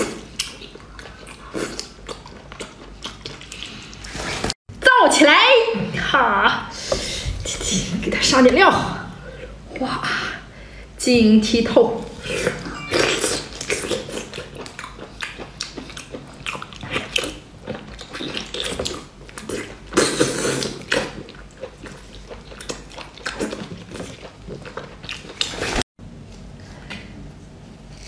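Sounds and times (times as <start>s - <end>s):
wet chewing and slurping: 0.0s - 4.6s, 12.1s - 25.8s.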